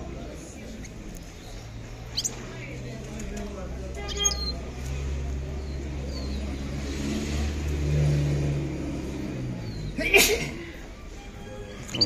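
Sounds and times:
faint bird chirps: 0.7 - 2.7, 4.0 - 4.7.

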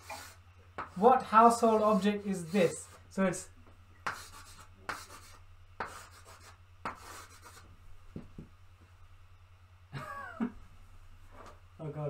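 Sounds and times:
chalk scratching on a blackboard: 0.0 - 3.1, 4.0 - 7.7.

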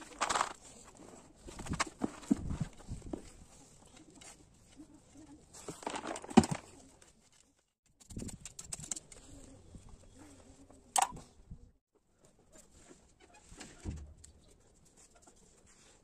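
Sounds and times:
plant rustling and handling: 0.0 - 7.8.

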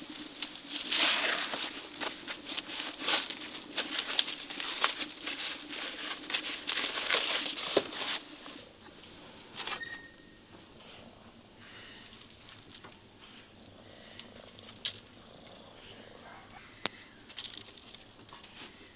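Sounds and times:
corn husks tearing and rustling: 0.0 - 8.7, 11.8 - 15.2, 15.9 - 18.8.

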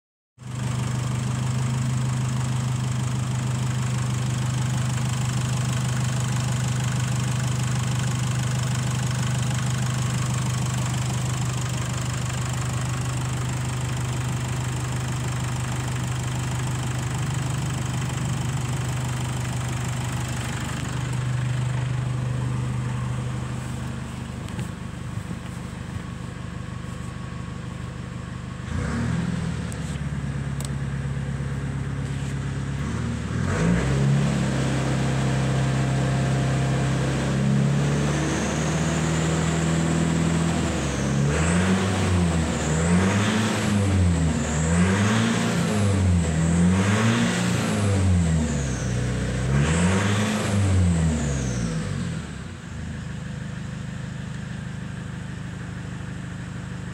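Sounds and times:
diesel engine idling: 0.4 - 33.4, 51.0 - 56.9
engine revving: 28.6 - 30.0, 32.7 - 52.5.

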